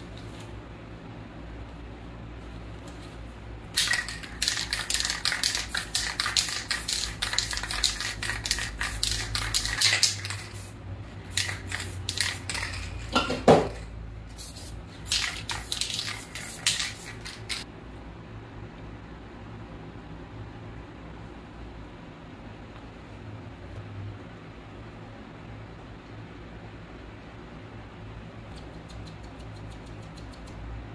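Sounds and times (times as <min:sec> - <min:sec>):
spray can rattling: 0:03.7 - 0:17.6.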